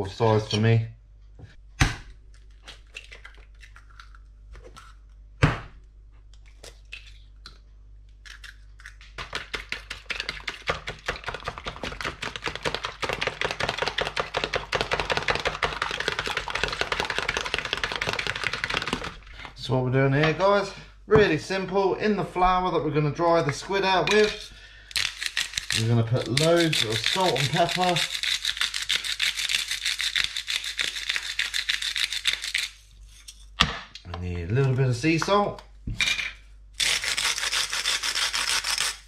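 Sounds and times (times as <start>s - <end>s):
fork beating egg in plastic tub: 9.2s - 19.6s, 23.4s - 32.8s.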